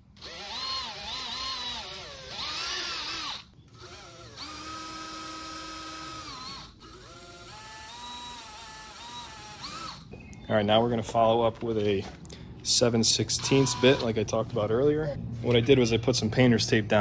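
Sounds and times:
cordless drill whining: 0.1 - 10.1, 13.4 - 14.2.

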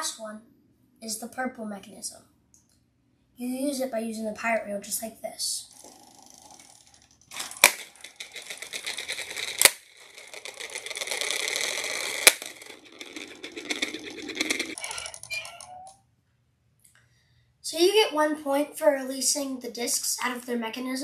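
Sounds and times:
plastic wheel clicking: 5.8 - 15.9
plastic discs dropping: 7.3 - 15.6.

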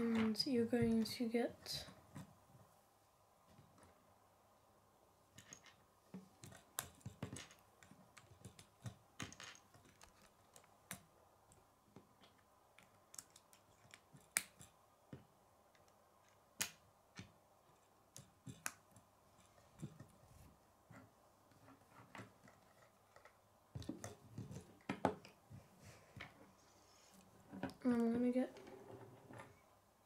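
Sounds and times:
plastic pieces clicking and snapping: 6.4 - 14.7.

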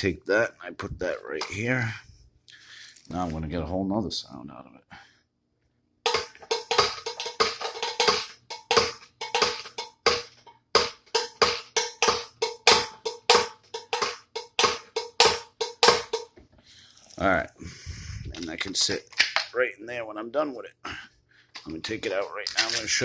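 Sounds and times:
foot-pedal percussion clacking: 6.1 - 16.4.

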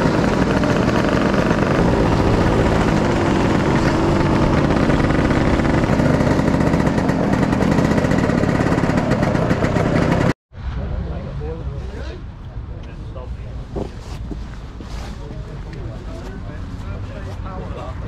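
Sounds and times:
scooter engine running: 0.0 - 10.4.

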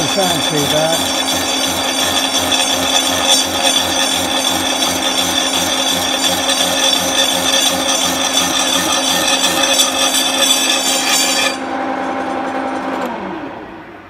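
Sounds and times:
saw cutting metal: 0.0 - 12.2
machine hum falling in pitch: 11.6 - 14.0.

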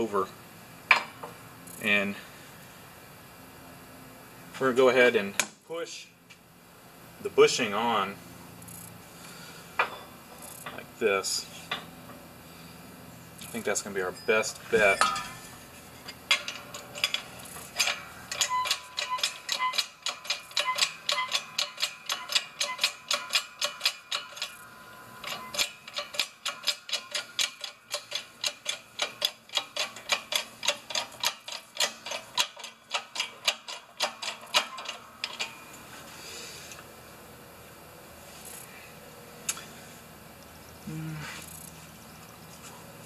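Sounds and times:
hydraulic press pump clicking: 16.3 - 24.6, 25.2 - 35.6.

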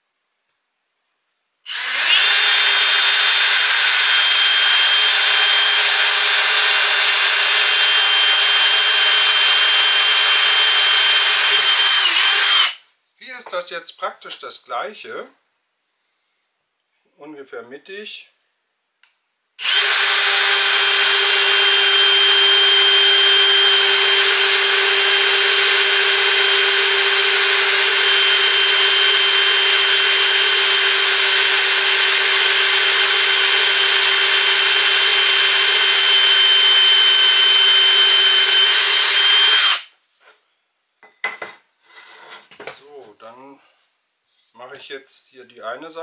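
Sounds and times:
cordless drill boring into wood: 1.7 - 12.8, 19.6 - 39.9.

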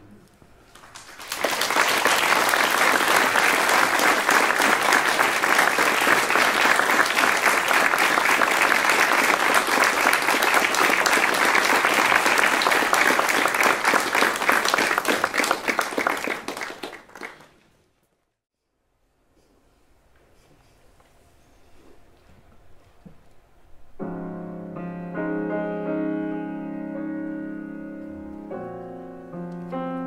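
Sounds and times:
audience applauding: 0.7 - 17.6.

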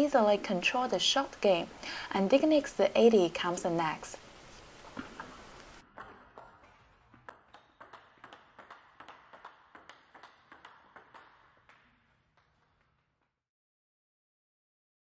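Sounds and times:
table tennis ball clicking: 5.0 - 13.1.

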